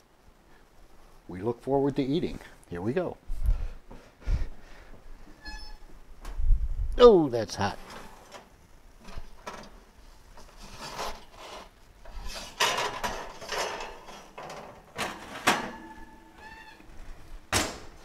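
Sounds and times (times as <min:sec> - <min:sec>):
faint squeak: 0:05.3 - 0:05.9, 0:15.8 - 0:16.8
oven rack clattering: 0:07.8 - 0:16.8
pizza peel scraping oven: 0:10.4 - 0:14.4.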